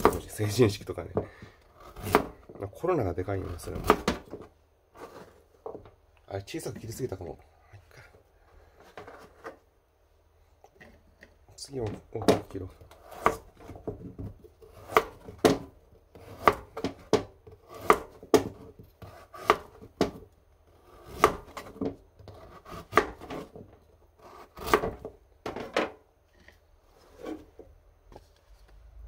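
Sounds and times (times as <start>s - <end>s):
knife chopping carrot on board: 0.0s - 0.3s, 1.2s - 2.5s, 3.7s - 4.4s, 11.8s - 20.2s, 21.0s - 25.6s.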